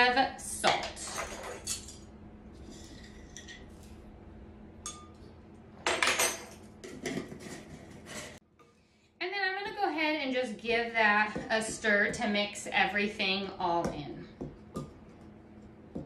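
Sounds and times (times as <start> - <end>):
metal spoons clinking on glass: 1.1 - 2.0.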